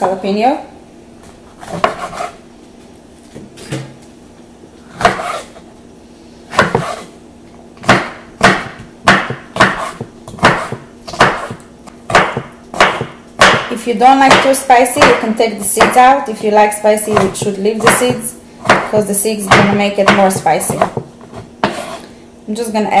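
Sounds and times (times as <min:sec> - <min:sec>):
knife chopping on wooden board: 0:01.6 - 0:02.4, 0:05.0 - 0:05.6, 0:06.5 - 0:07.1, 0:07.8 - 0:13.7, 0:14.3 - 0:16.1, 0:17.0 - 0:22.0.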